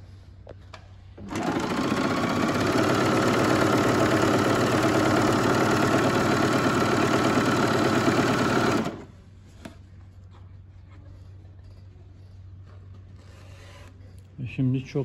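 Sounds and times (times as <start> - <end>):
sewing machine running: 1.2 - 9.1.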